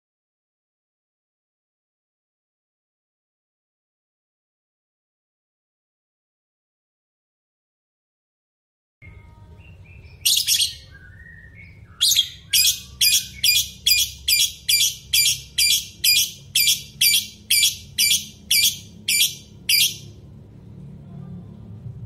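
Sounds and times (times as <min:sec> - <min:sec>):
bird chirping shrilly: 0:09.7 - 0:20.2.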